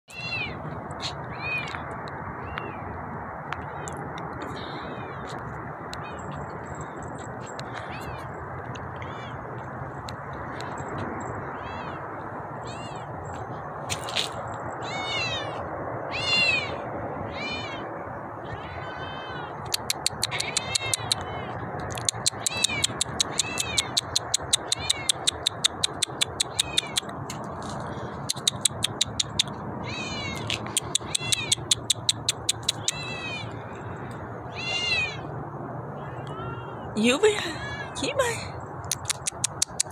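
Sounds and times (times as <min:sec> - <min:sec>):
steady background noise: 0:00.1 - 0:39.9
kitten meowing: 0:12.6 - 0:13.1, 0:14.8 - 0:27.1, 0:28.5 - 0:33.5, 0:34.5 - 0:35.2
fast sharp ticks: 0:19.7 - 0:21.2, 0:21.8 - 0:27.5, 0:28.2 - 0:29.6, 0:30.4 - 0:33.0, 0:38.8 - 0:39.9
sharp click: 0:38.8 - 0:39.9.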